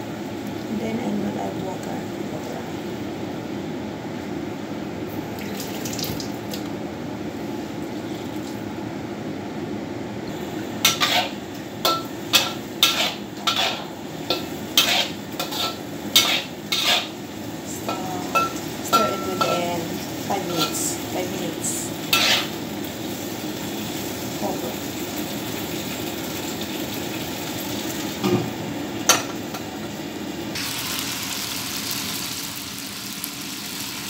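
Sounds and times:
metal spatula scraping a wok: 0:10.8 - 0:17.2, 0:22.1 - 0:22.6.

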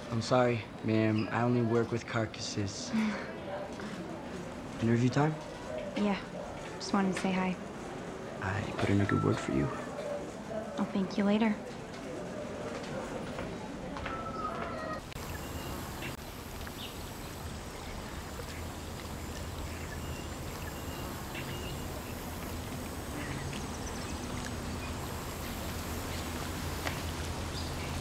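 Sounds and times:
water-like hiss: 0:15.1 - 0:28.0.

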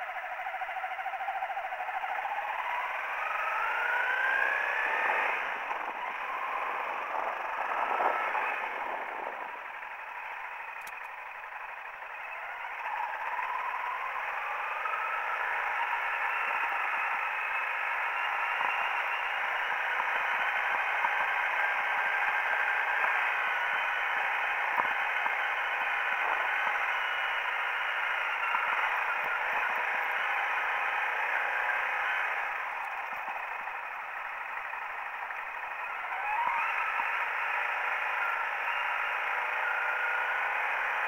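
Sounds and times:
motorcycle engine running: 0:00.0 - 0:41.0.

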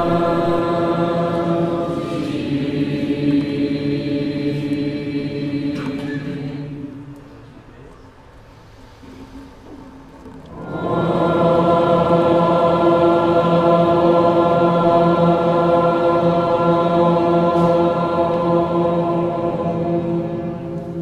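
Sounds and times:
steady music drone: 0:00.0 - 0:07.0, 0:10.5 - 0:21.0.

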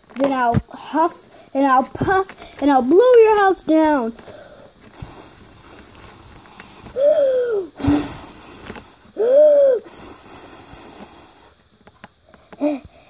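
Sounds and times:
blow of air into microphone: 0:05.0 - 0:11.5
person huffing: 0:06.8 - 0:10.7.

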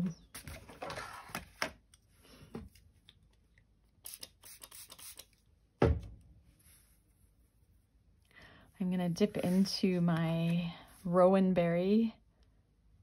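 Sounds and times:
soft scraping and rubbing: 0:06.5 - 0:07.8, 0:09.0 - 0:11.2.

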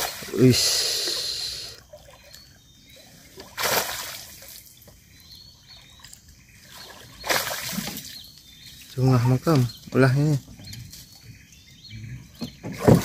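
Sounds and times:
loud water splashes: 0:00.0 - 0:01.5, 0:03.4 - 0:04.5, 0:07.2 - 0:08.1.

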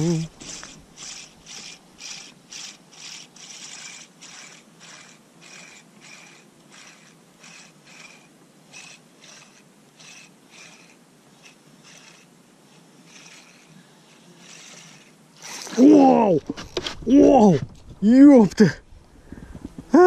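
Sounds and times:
fishing reel whirring: 0:00.0 - 0:17.5.

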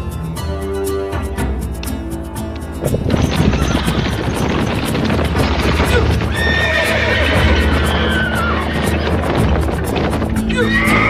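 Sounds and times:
horses galloping hoofbeats: 0:01.6 - 0:11.0
horse whinnying: 0:03.2 - 0:11.0.

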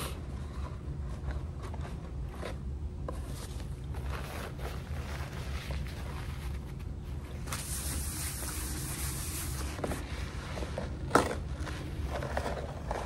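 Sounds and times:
steady low hum: 0:00.0 - 0:13.0
cardboard box and paper rustling: 0:00.4 - 0:13.0.

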